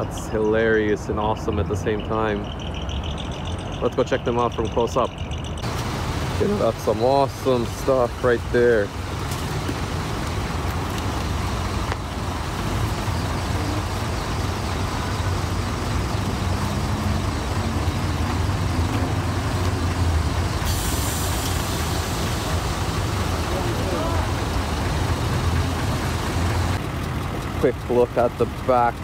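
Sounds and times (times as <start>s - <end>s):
diesel trucks idling: 0.0s - 29.0s
steady hiss: 20.6s - 24.6s.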